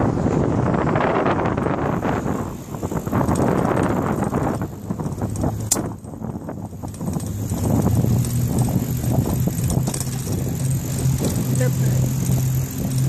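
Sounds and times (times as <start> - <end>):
wind buffeting microphone: 0.0 - 13.0
knocks and rattles: 3.1 - 13.0.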